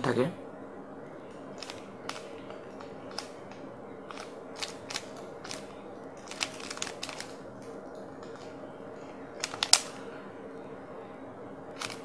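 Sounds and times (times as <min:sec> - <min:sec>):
faint hum: 0:00.0 - 0:12.0
puzzle cube layers clicking: 0:04.1 - 0:07.4.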